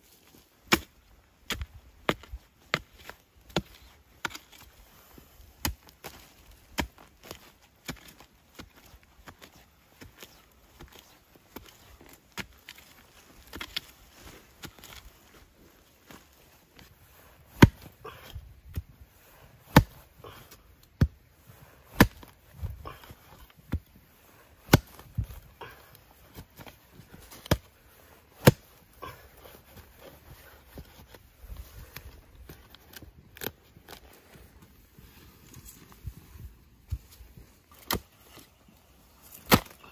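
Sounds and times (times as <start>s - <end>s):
soil and leaves rustling: 0.0s - 39.9s
hoe chopping into soil: 0.6s - 4.7s, 5.6s - 11.0s, 17.5s - 18.9s, 19.6s - 20.4s, 21.8s - 23.9s, 24.6s - 27.7s, 28.4s - 31.2s, 36.9s - 38.5s, 39.2s - 39.9s.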